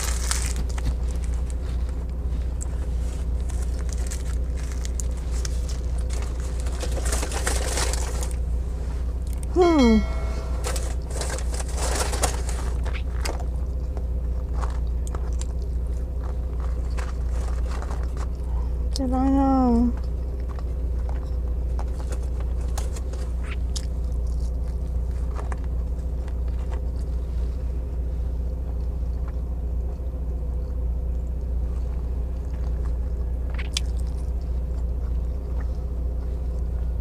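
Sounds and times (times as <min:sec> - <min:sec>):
paper wrapper crinkling: 0:00.0 - 0:02.0, 0:02.6 - 0:08.4, 0:10.6 - 0:13.4
chewing: 0:00.0 - 0:08.4, 0:12.8 - 0:19.0, 0:19.9 - 0:27.6, 0:28.4 - 0:37.0
steady low hum: 0:00.0 - 0:37.0
person humming mmm: 0:09.4 - 0:10.4.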